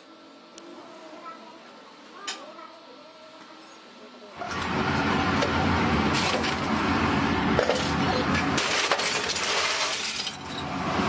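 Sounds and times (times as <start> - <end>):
scrap metal clattering: 7.6 - 10.7.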